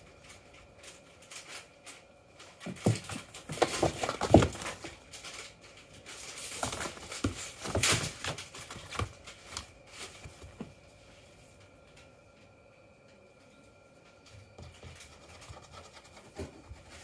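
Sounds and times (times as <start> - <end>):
cardboard rustling: 2.6 - 11.0
cat scratching in cardboard box: 6.2 - 10.6, 14.6 - 17.0.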